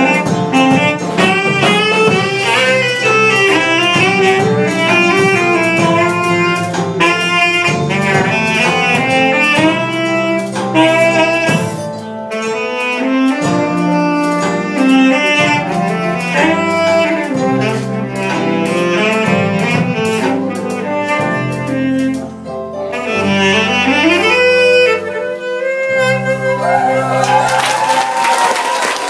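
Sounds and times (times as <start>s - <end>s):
solo saxophone melody: 0.0s - 28.0s
sustained bass accompaniment: 0.0s - 28.7s
applause: 27.2s - 29.0s.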